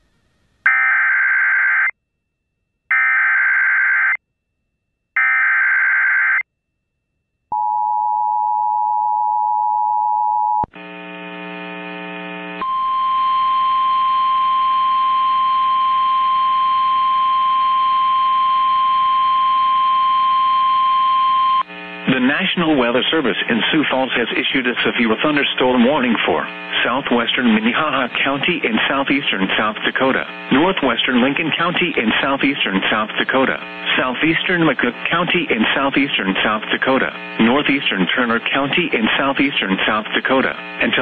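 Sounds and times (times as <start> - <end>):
buzzy tone: 10.7 - 23.2
steady alarm tone: 12.6 - 21.6.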